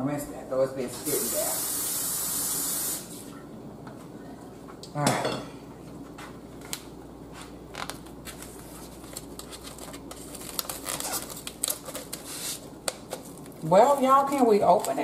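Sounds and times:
plastic wrapping crinkling: 7.8 - 15.0.

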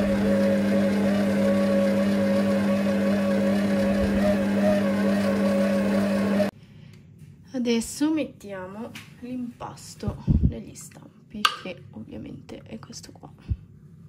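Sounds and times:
food processor motor humming: 0.0 - 6.5.

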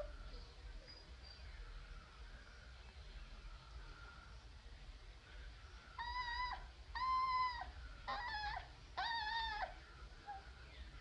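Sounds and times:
puppy whining: 6.0 - 10.4.

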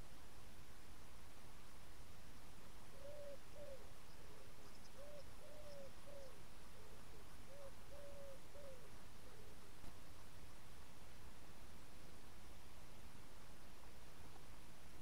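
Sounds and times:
pigeon cooing: 2.9 - 9.7.

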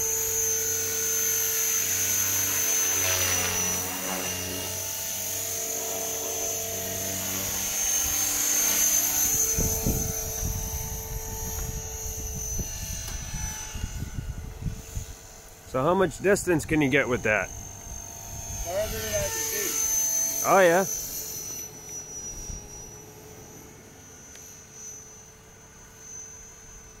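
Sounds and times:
model helicopter motor whine: 0.0 - 27.0.

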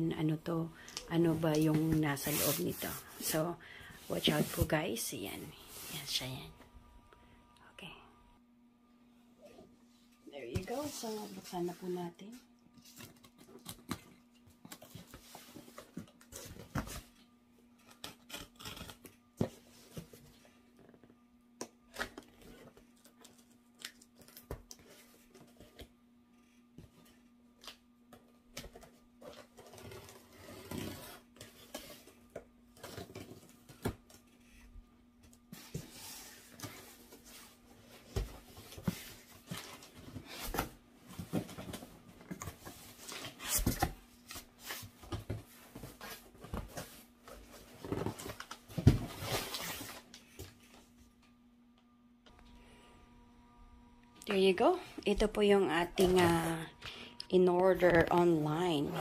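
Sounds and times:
faint steady hum: 0.0 - 59.0
packing tape being slit: 17.8 - 19.2.

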